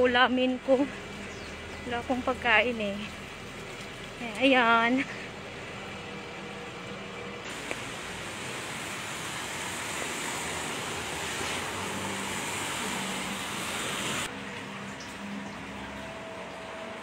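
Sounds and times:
bus passing: 0.0s - 17.0s
tyres hissing on wet road: 7.5s - 14.3s.

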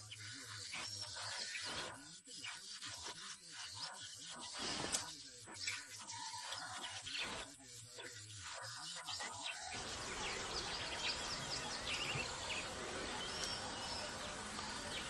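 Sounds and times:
small birds chirping: 0.0s - 15.0s
steady background hiss: 9.7s - 15.0s.

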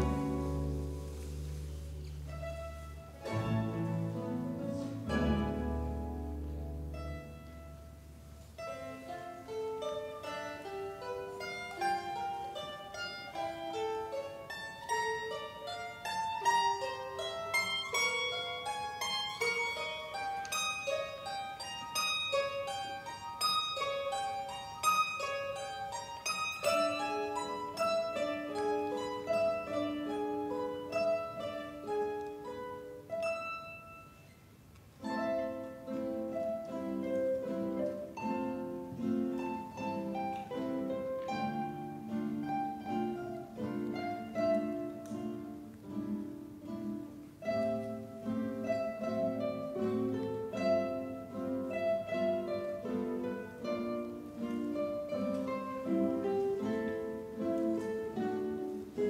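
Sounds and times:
mandolin orchestra playing: 0.0s - 59.0s.

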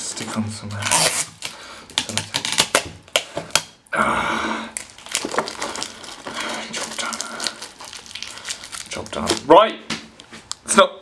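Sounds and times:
crackles and clicks of tape: 4.8s - 10.7s.

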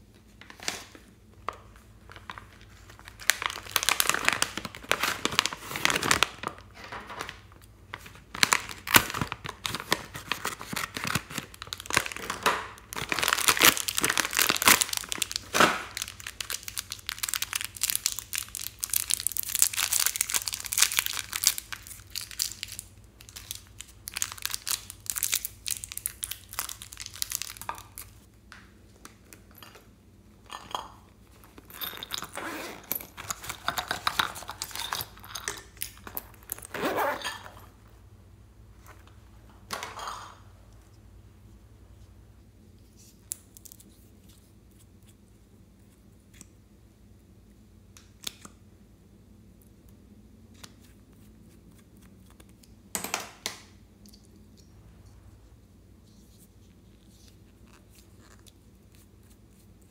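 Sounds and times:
plastic packaging crinkling and tearing: 2.1s - 28.3s.

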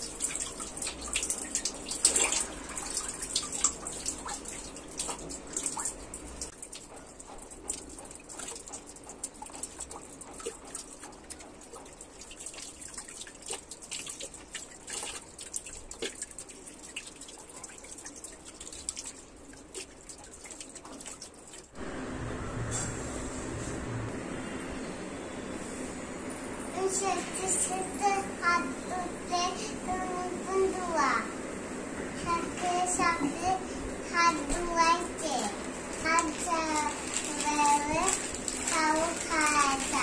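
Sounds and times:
water running from a tap: 0.0s - 21.8s, 34.1s - 40.0s
steady low hum: 21.8s - 36.8s.

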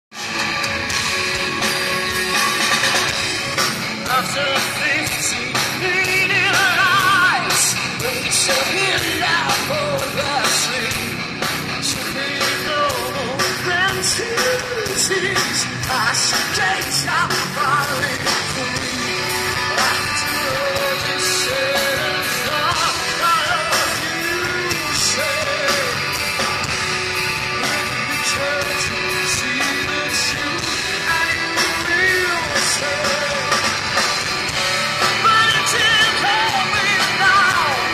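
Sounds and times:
live rock band playing: 0.1s - 37.9s
woman singing: 4.1s - 10.9s, 35.2s - 37.9s.

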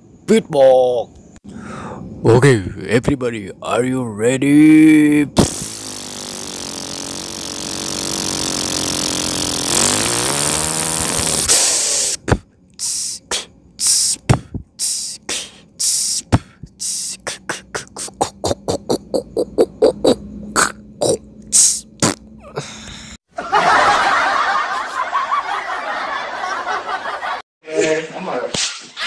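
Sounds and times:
beatboxing percussion hits: 5.4s - 22.3s
low hum: 16.5s - 23.1s.

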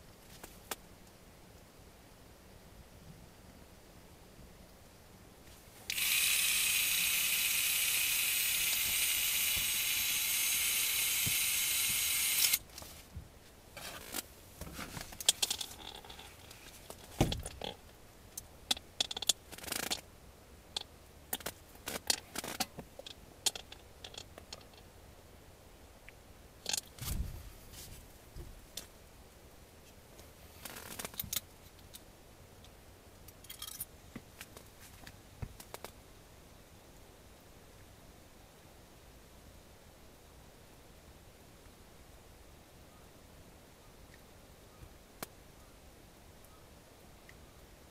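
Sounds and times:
small electric motor whining: 5.9s - 12.6s.

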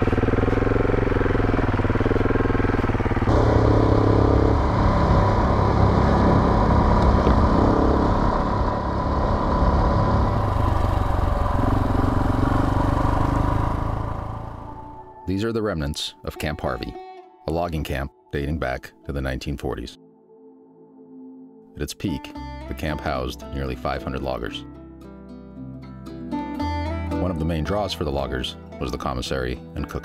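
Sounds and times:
motorcycle engine revving: 0.0s - 15.2s.

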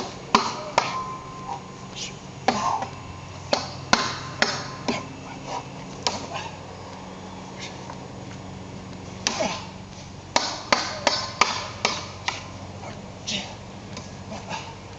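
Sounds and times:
sword blade ringing: 0.4s - 1.7s
sword striking wooden post: 3.5s - 4.8s, 10.4s - 12.4s.

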